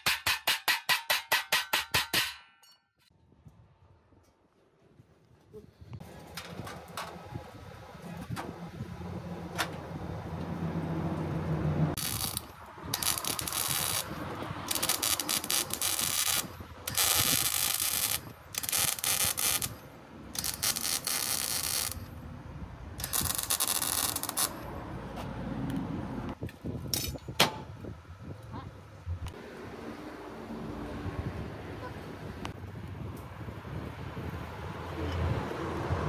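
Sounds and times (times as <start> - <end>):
welding arc crackling: 12.0 - 22.2, 22.9 - 24.7.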